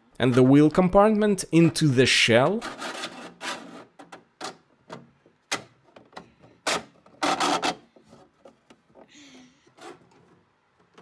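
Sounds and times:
plastic parts scraping and knocking: 2.4s - 11.0s.

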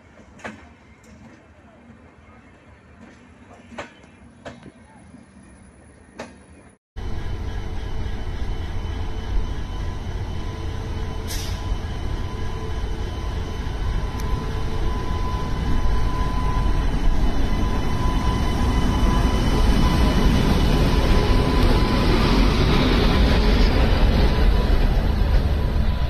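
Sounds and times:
train wheels rumbling on rails: 0.0s - 5.5s, 6.1s - 26.0s
brief air hiss: 11.3s - 11.7s.

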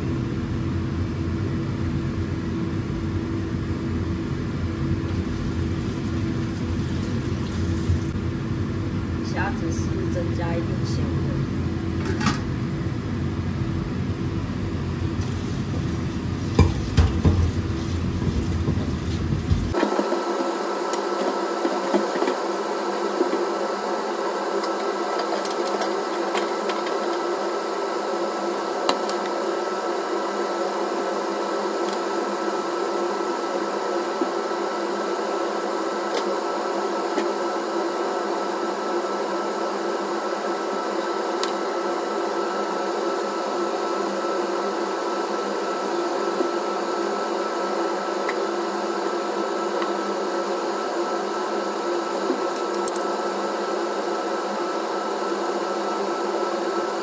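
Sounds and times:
thin hum with high whine: 0.0s - 57.0s
kitchen appliance motor running: 38.9s - 57.0s.

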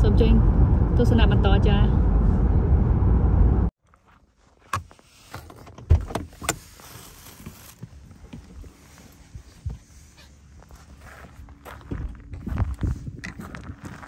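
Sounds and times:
car driving along road: 0.0s - 3.7s.

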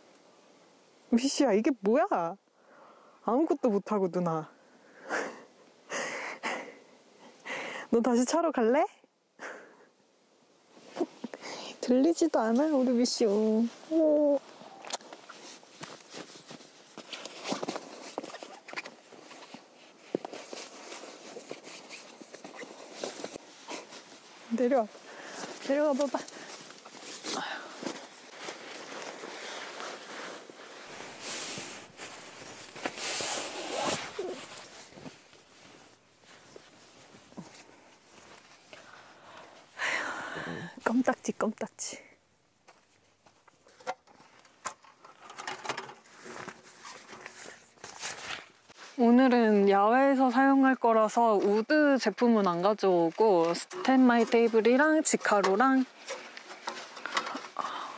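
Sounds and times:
fabric rustling: 10.7s - 40.1s, 46.0s - 57.9s.

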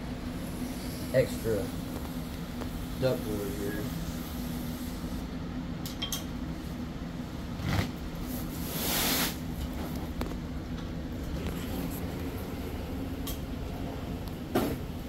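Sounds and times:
steady low hum: 0.0s - 15.0s
board scraping on concrete floor: 7.6s - 8.0s.

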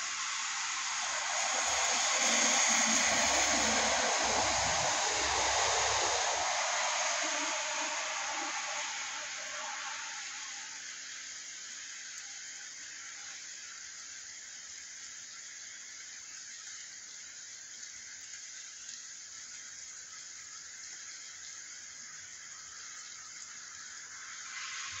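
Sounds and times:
rain on wet street: 0.0s - 10.8s, 24.0s - 25.0s.

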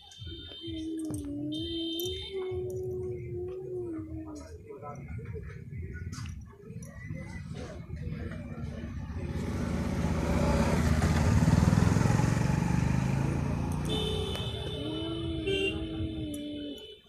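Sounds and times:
vehicle engine passing by: 7.5s - 15.9s.

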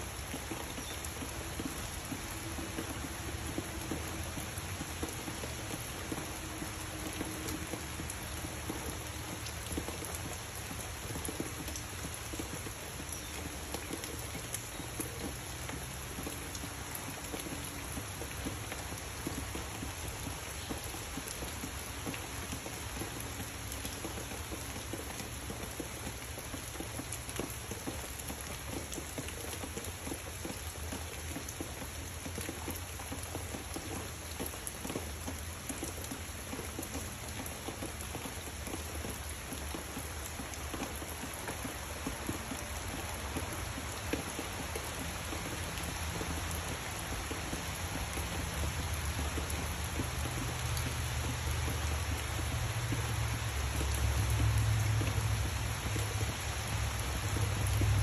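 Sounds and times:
rain falling on leaves: 0.0s - 58.0s.

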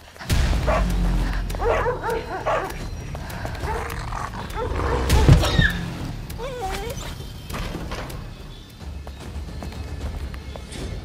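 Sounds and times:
steady low hum: 0.0s - 6.5s
dog barking: 0.6s - 0.9s, 1.6s - 2.8s, 3.6s - 7.0s.

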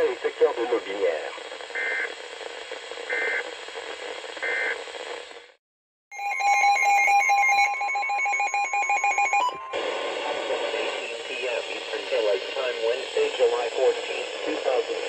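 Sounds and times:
pulsing alert alarm: 6.2s - 10.1s
steady alert tone: 6.2s - 10.2s
short beeps: 6.2s - 10.4s
radio speaker hissing: 9.8s - 15.0s.

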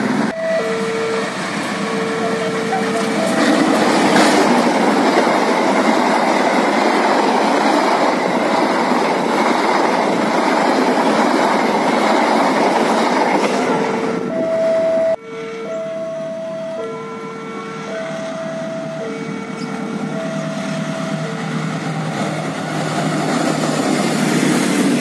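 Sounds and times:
rush of wheels on rails: 0.0s - 15.2s, 17.8s - 25.0s
diesel locomotive passing: 0.0s - 25.0s
steady two-note tone: 14.4s - 21.4s.

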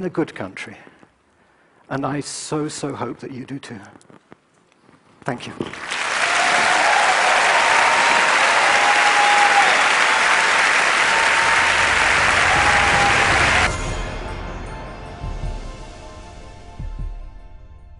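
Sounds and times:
large audience applauding: 5.7s - 13.7s.

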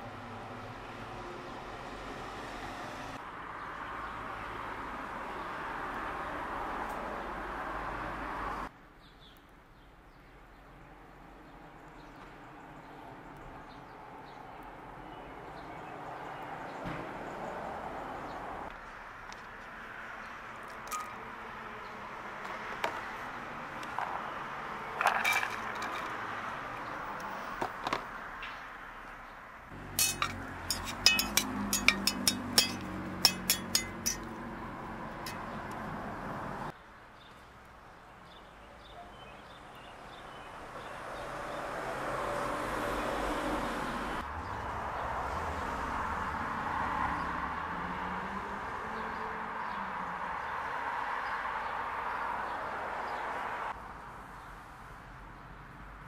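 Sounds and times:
metal turner clinking against pot: 29.9s - 34.3s.

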